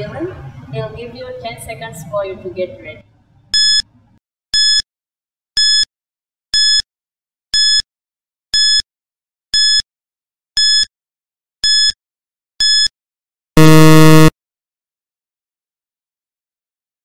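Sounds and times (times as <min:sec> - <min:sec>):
countdown timer beeps: 0:03.6 - 0:03.8, 0:04.6 - 0:04.8, 0:05.6 - 0:05.9, 0:06.6 - 0:06.8, 0:07.6 - 0:07.8, 0:08.6 - 0:08.8, 0:09.6 - 0:09.8, 0:10.6 - 0:10.9, 0:11.6 - 0:12.0, 0:12.6 - 0:12.9.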